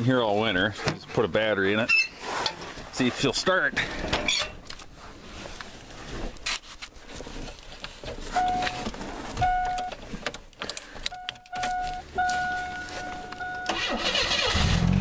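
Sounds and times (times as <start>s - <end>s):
car warning chime: 8.4s - 10.0s, 11.1s - 14.2s.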